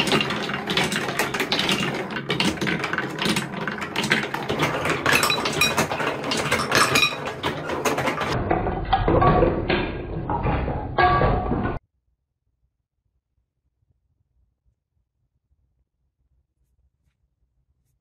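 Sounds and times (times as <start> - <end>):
balls rattling down marble run: 0.0 - 11.8.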